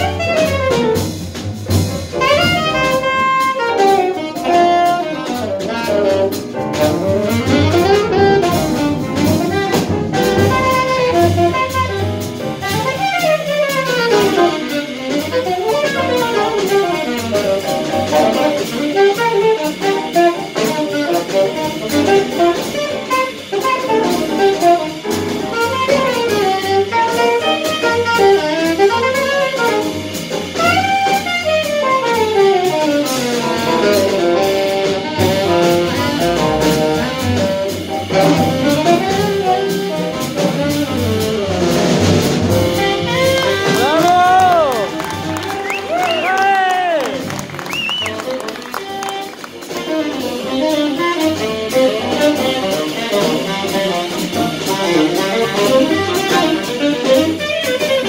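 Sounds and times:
double bass: 0:00.0 - 0:58.0
drum kit: 0:00.0 - 0:58.0
saxophone fast runs: 0:02.2 - 0:25.0, 0:41.7 - 0:58.0.

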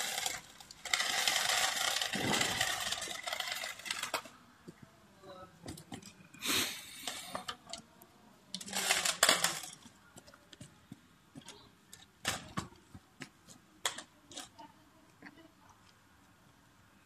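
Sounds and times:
plastic toy car clicks and knocks: 0:00.0 - 0:04.3, 0:08.6 - 0:09.8, 0:13.8 - 0:14.6.

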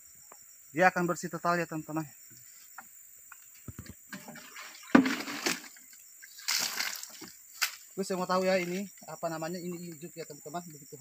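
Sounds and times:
water splashing out of a plastic jug: 0:04.2 - 0:07.8.

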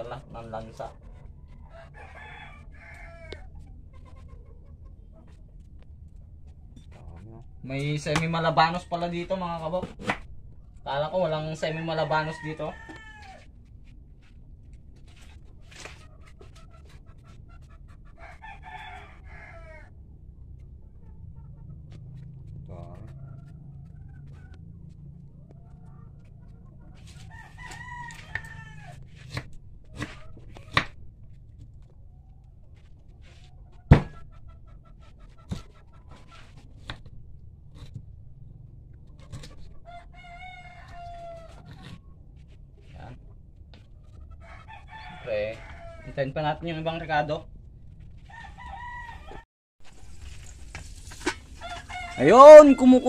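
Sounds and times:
chickens clucking: 0:00.0 - 0:13.4, 0:14.2 - 0:37.1, 0:37.7 - 0:46.9
rooster crowing: 0:01.4 - 0:03.6, 0:11.2 - 0:13.5, 0:18.1 - 0:20.0, 0:27.2 - 0:29.0, 0:39.8 - 0:41.9, 0:44.4 - 0:46.4, 0:48.2 - 0:49.4, 0:51.6 - 0:53.0
sharp knocks: 0:33.9 - 0:34.2.

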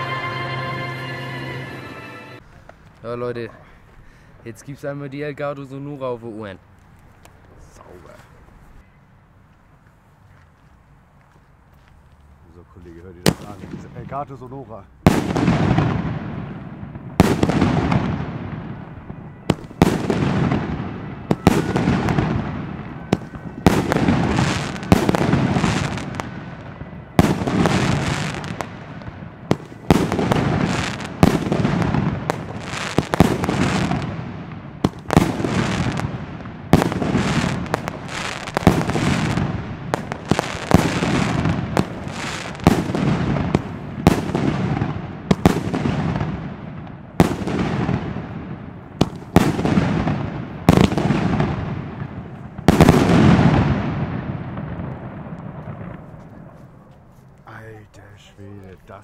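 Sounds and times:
fireworks bangs: 0:13.1 - 0:59.0
rolling echo: 0:13.2 - 0:57.2.

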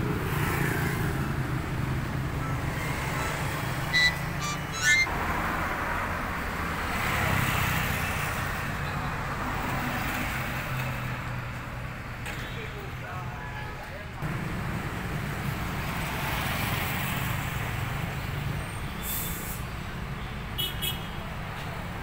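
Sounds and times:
traffic engine rumble: 0:00.0 - 0:22.0
short high-pitched tones: 0:03.9 - 0:05.0.

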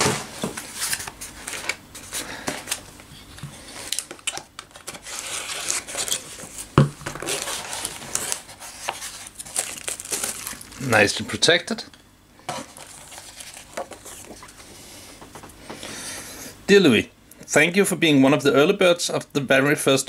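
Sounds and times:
cardboard scraping and rustling: 0:00.0 - 0:02.8, 0:04.7 - 0:10.6.

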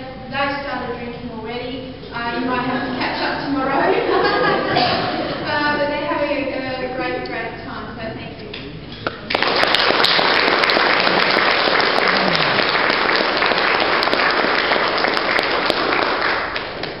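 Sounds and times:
audience applauding: 0:09.3 - 0:17.0.

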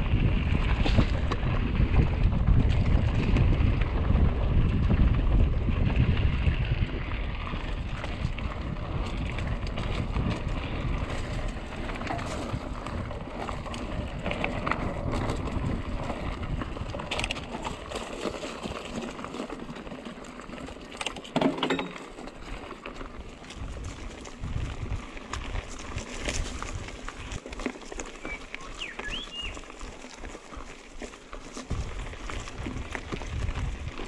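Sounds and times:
wind on microphone: 0:00.0 - 0:18.0, 0:23.5 - 0:27.4, 0:31.6 - 0:34.0
bike clicks and rattles: 0:00.0 - 0:34.0
bike tyres on dirt: 0:00.0 - 0:34.0.

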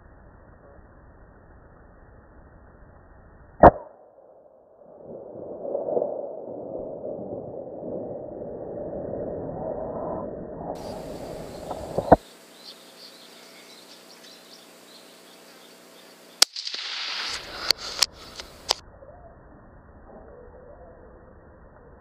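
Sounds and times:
faint steady hum: 0:00.0 - 0:22.0
hiss: 0:10.8 - 0:13.9, 0:15.4 - 0:18.8
rifle cracks: 0:16.4 - 0:18.8
small clicks: 0:16.4 - 0:18.8.

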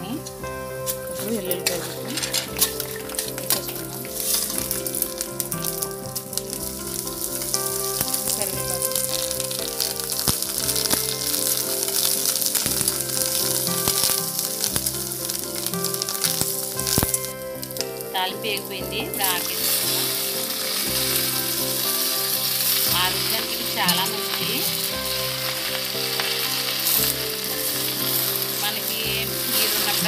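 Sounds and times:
food sizzling in hot oil: 0:00.0 - 0:30.0
steel spoon stirring: 0:00.2 - 0:17.3.

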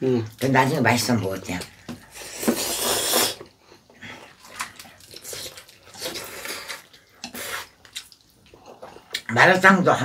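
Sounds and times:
noodles being slurped: 0:02.1 - 0:03.5, 0:04.1 - 0:09.3
chewing: 0:02.1 - 0:09.4.

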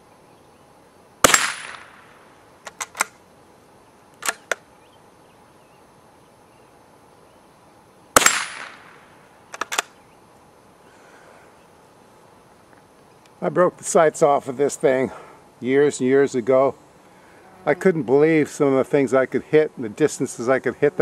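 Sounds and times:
rifle shots: 0:01.2 - 0:03.2, 0:08.2 - 0:09.9
rifle bolt clicking: 0:02.6 - 0:03.2, 0:09.5 - 0:09.9.

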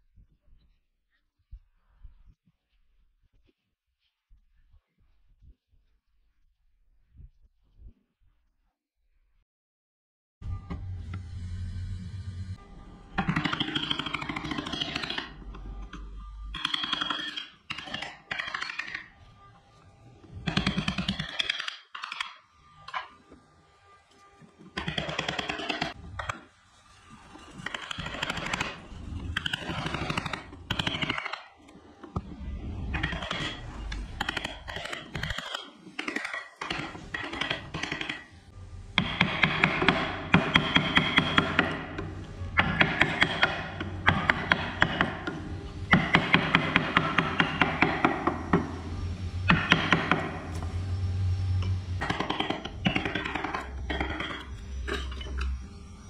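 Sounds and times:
power tool working wood: 0:36.6 - 0:56.0.

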